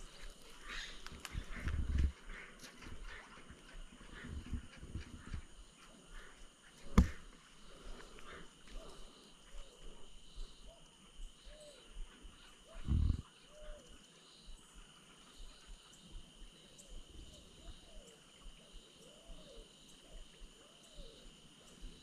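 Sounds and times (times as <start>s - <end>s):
animals calling: 0.0s - 14.0s.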